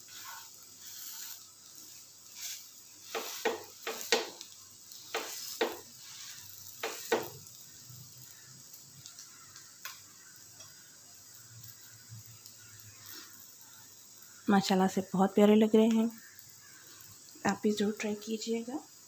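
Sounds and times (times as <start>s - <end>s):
metal spatula scraping a griddle: 0.0s - 7.4s
egg and bread sizzling: 0.0s - 19.0s.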